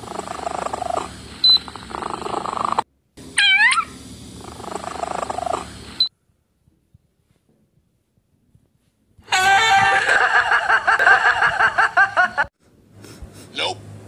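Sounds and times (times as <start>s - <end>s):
cat meowing: 3.4s - 3.9s.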